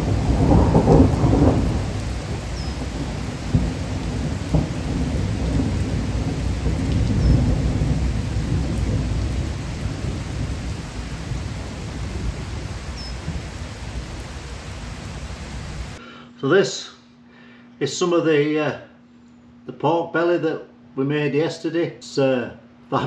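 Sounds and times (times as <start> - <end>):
rain on pavement: 0.0 - 16.0
rolling thunder: 0.0 - 16.0.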